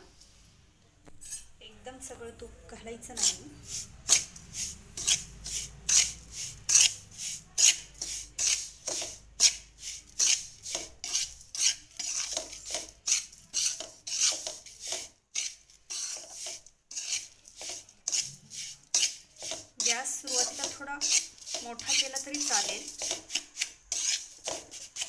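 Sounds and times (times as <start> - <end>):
metal spatula scraping metal pan: 1.2 - 1.5, 3.1 - 25.0.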